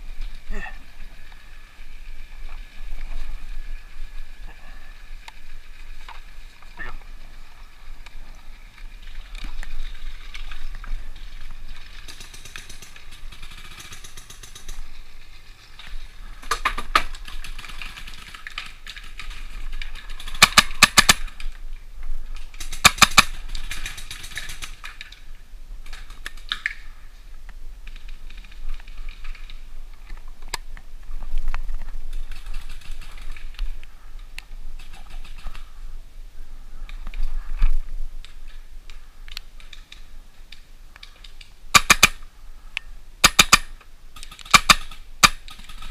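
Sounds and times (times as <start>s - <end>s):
paintball markers firing: 20.3s - 21.3s, 22.6s - 23.3s, 41.7s - 42.2s, 43.2s - 45.9s.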